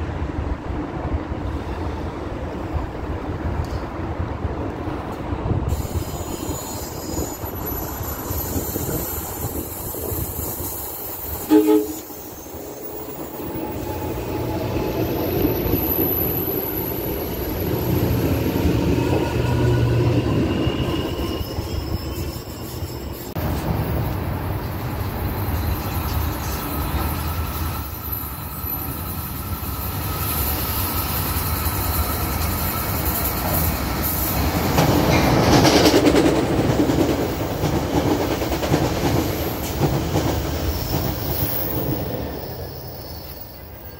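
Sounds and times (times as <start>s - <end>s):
train wheels rumbling on rails: 0.0s - 43.9s
train horn toot: 11.4s - 12.3s.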